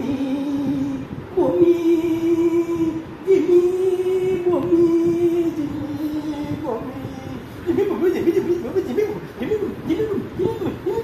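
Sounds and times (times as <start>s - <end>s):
person singing long notes: 0.0s - 11.0s.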